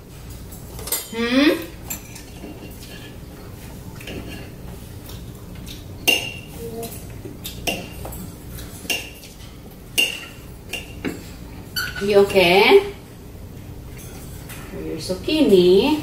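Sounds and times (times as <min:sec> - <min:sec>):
cutlery clinking on plates: 0:00.8 - 0:01.2, 0:01.8 - 0:03.2, 0:03.9 - 0:12.1.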